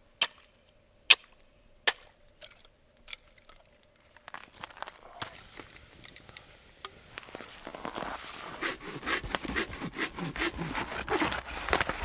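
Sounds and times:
crunching and rustling: 3.2 - 6.3, 7.1 - 9.6, 10.4 - 12.0.

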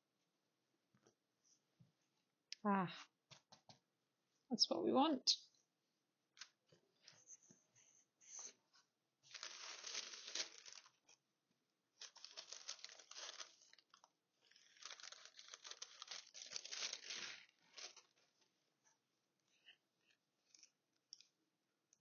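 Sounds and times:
faint clicks and taps: 3.3 - 3.9
plastic sheet rustling and crinkling: 9.2 - 11.2, 12.0 - 18.6.

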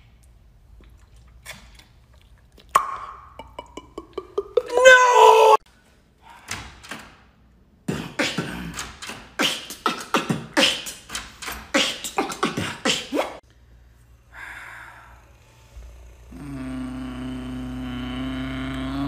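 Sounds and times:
mouth beatboxing: 2.7 - 4.7, 7.9 - 13.4, 16.3 - 19.0.

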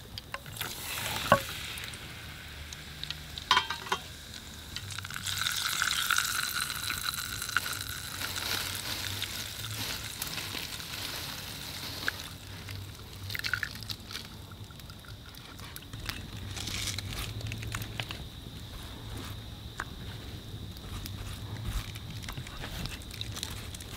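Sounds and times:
soft hiss: 0.0 - 23.9
spoon clinking against glass jar: 3.5 - 4.1.

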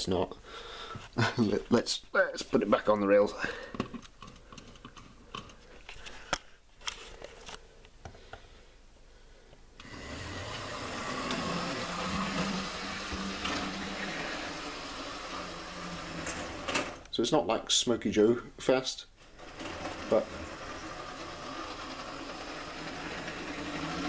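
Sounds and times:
model train motor whirring: 9.8 - 17.0, 19.4 - 24.0.

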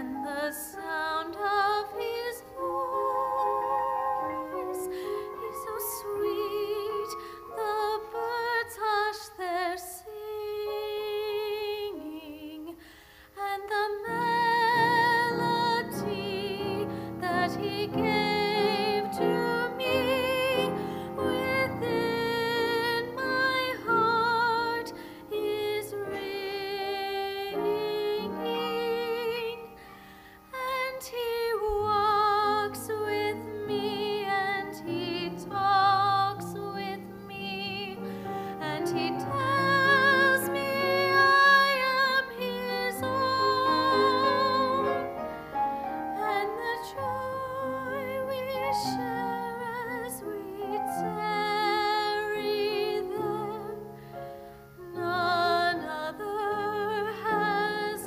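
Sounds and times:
instrumental accompaniment: 0.0 - 8.5
woman singing with vibrato: 0.0 - 53.9, 54.8 - 58.0.

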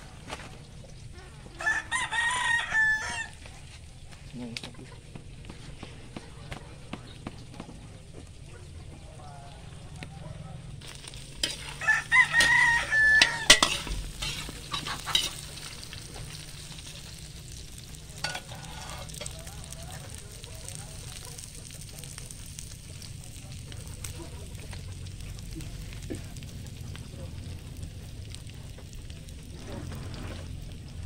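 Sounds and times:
meat sizzling in a wok: 0.0 - 4.2, 10.8 - 31.0
rooster crowing: 1.5 - 3.5, 11.5 - 15.4.

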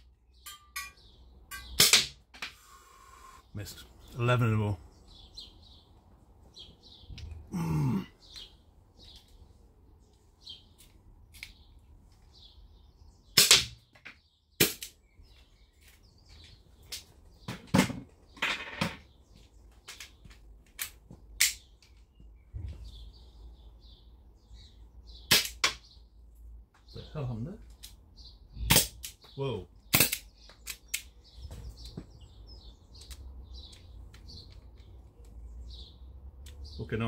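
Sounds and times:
air pistol shots: 1.8 - 2.2, 13.4 - 13.8, 14.6 - 15.0, 25.3 - 25.8, 28.7 - 29.1, 29.9 - 30.2
faint bird chirps: 2.6 - 4.2.

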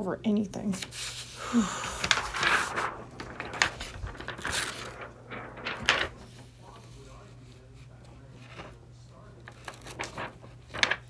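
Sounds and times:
plastic mat sliding on table: 1.0 - 6.4.

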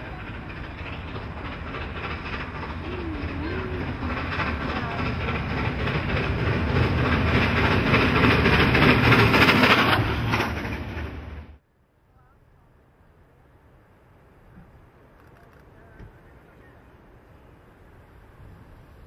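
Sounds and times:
steam locomotive passing: 0.0 - 19.0.

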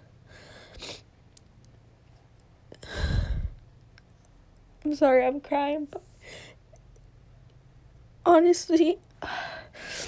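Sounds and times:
heavy sigh: 2.8 - 3.6.

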